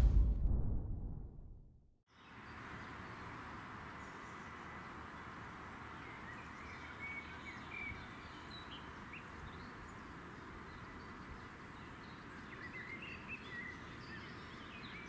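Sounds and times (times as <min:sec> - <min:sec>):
faint birds chirping: 0:02.1 - 0:15.0
outdoor background hiss: 0:02.1 - 0:15.0.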